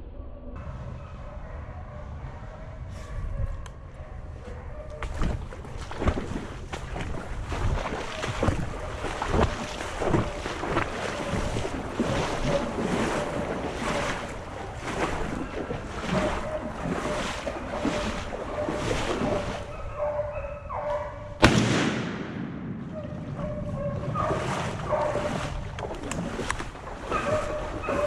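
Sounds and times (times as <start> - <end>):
splashing steps in shallow water: 4.9 - 22.2, 23.0 - 28.0.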